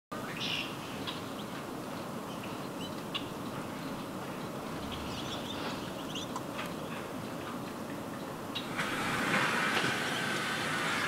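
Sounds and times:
small birds chirping: 0.2 - 7.4
steady background hiss: 0.2 - 11.0.

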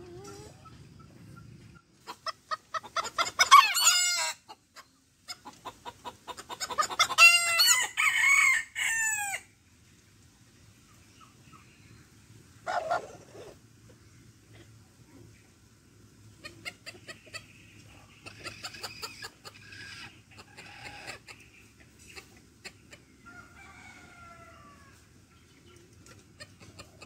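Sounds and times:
rooster clucking and crowing: 0.0 - 9.5, 12.6 - 13.6, 18.2 - 25.2, 26.1 - 27.0.

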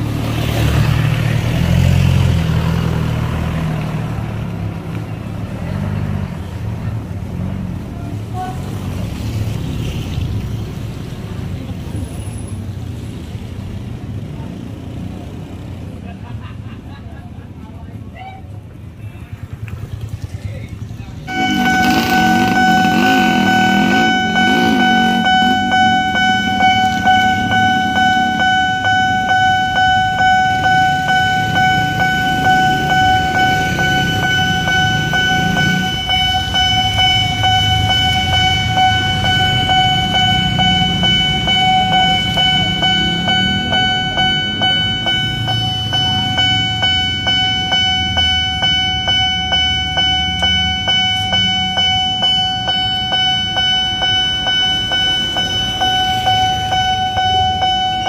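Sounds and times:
motorbike engines running: 0.0 - 58.0
level crossing electronic bell alarm: 21.3 - 58.0.

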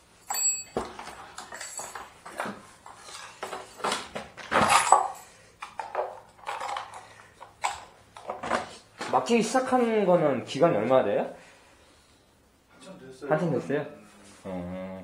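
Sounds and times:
metallic ring: 0.2 - 0.8
metal tools clinking: 0.2 - 7.9.

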